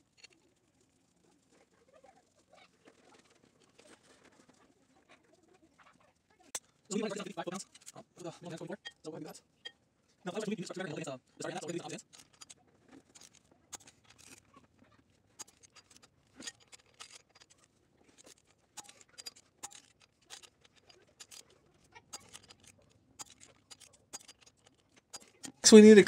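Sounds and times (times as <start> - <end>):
small metal parts clicking: 6.5 - 9.8, 10.4 - 25.7.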